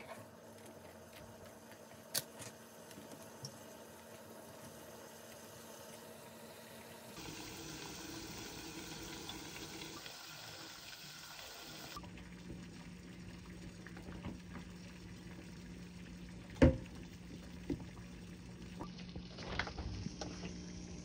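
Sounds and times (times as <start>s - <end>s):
chicken sizzling in oil: 3.6s - 12.0s.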